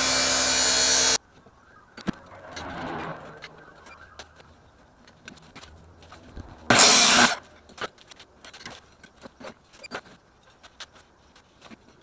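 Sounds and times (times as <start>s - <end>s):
chop saw cutting metal tube: 0.0s - 1.2s, 6.7s - 7.4s.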